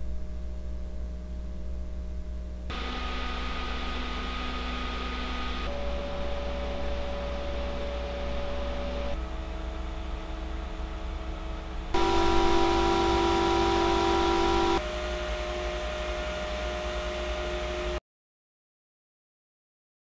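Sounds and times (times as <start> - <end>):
computer cooling fans whooshing: 2.7 - 18.0.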